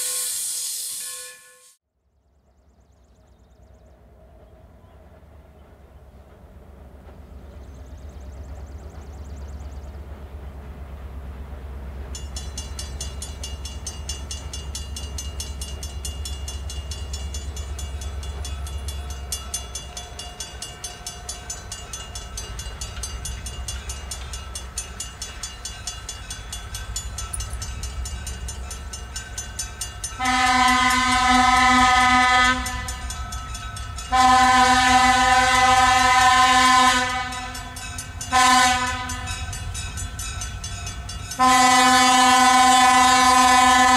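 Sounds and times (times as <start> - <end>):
train air horn blasts: 0.0 - 1.8, 30.2 - 33.1, 34.1 - 39.4, 41.4 - 43.9
crossing bell ringing: 1.0 - 1.8, 12.1 - 42.4
locomotive engine rumble: 2.6 - 43.9.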